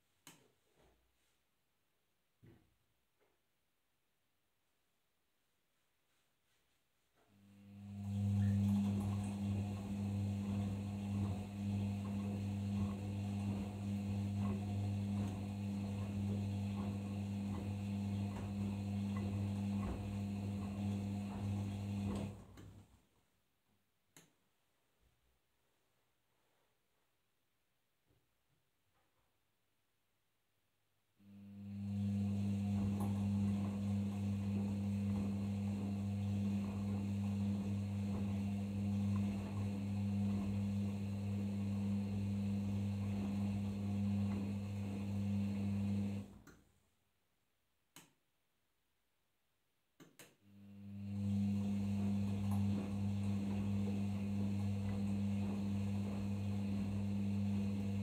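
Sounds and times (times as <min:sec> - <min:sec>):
washing machine motor hum: 0:07.3 - 0:22.9, 0:31.2 - 0:46.5, 0:50.4 - 0:58.0.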